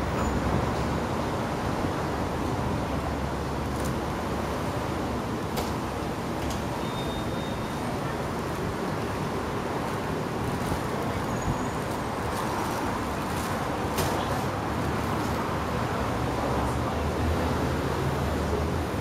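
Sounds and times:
cars passing: 8.6s - 19.0s.

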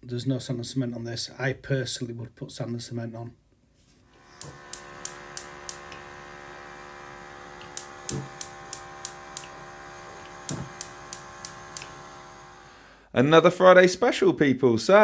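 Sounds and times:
gas burners humming: 4.2s - 13.0s
spark igniter clicking: 4.4s - 6.0s, 7.6s - 9.6s, 10.2s - 11.9s.

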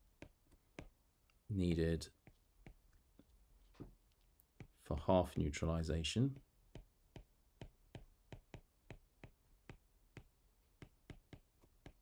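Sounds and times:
stylus tapping on tablet screen: 0.0s - 1.0s, 2.2s - 3.0s, 4.5s - 4.8s, 6.4s - 12.0s.

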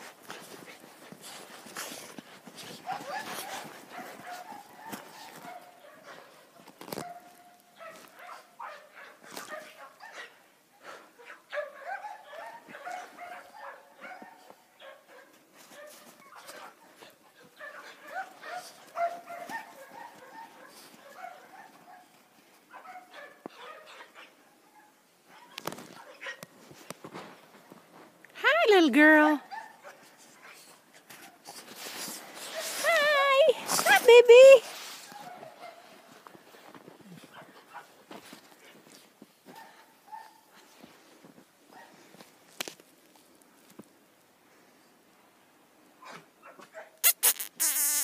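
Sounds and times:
scuffling in snow: 0.0s - 6.4s, 31.2s - 42.5s.

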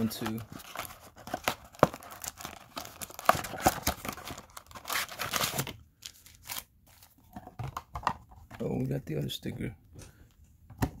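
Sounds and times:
foil packs crinkling: 0.0s - 7.1s
cardboard box tearing: 0.4s - 5.7s.

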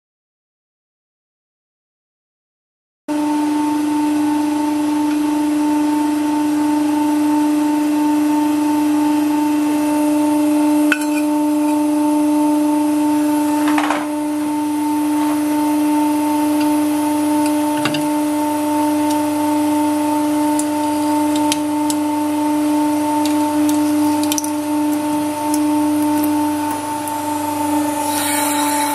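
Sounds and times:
pump motor humming: 16.5s - 28.9s.

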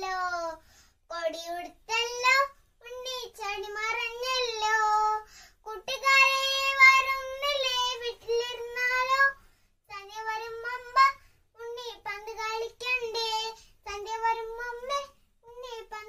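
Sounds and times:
girl singing unaccompanied: 0.0s - 16.0s
girl breathing: 0.6s - 1.1s, 5.2s - 5.7s, 9.3s - 9.9s, 11.2s - 11.6s, 13.6s - 13.8s.

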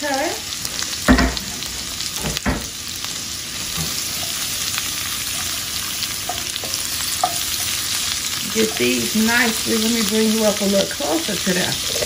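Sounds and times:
vegetables sizzling in oil: 0.0s - 12.0s
wooden spoon stirring: 5.2s - 9.8s.

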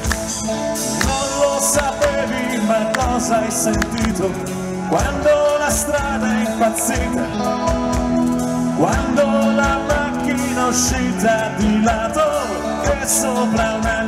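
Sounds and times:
electric guitar: 0.0s - 14.0s
man singing into microphone: 0.9s - 8.0s, 8.7s - 14.0s.

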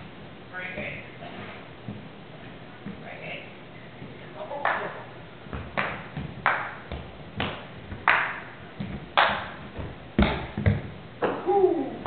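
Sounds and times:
ball bouncing on wooden floor: 5.5s - 11.0s.

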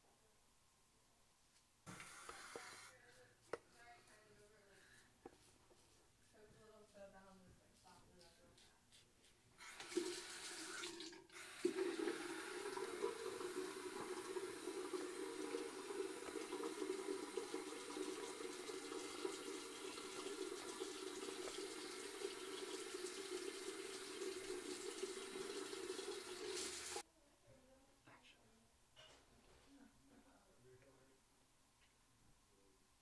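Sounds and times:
faucet running: 9.6s - 27.0s.

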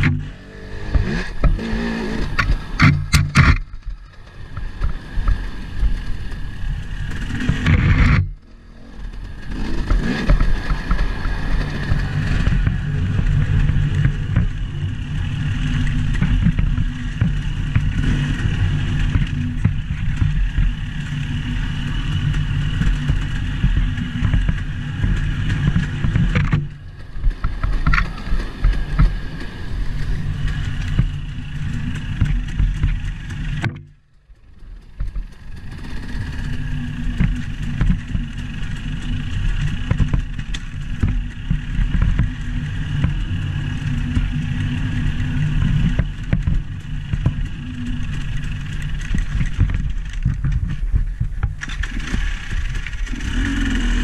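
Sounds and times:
engine running with low rumble: 0.0s - 54.0s.

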